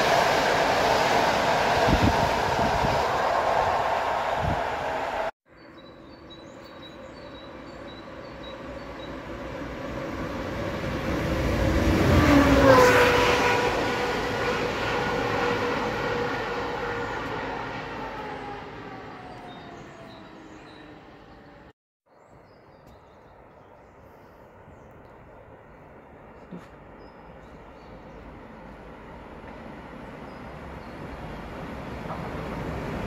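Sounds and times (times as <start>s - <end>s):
electric train rushing past: 0.0s - 5.4s, 8.1s - 21.3s, 28.1s - 33.0s
vehicle passing by: 9.1s - 21.4s.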